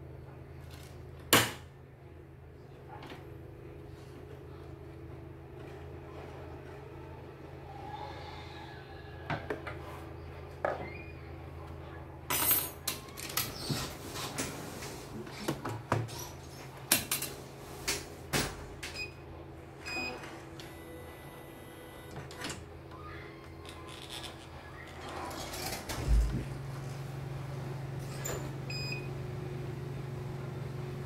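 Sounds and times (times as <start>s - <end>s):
steady low hum: 24.6s - 31.0s.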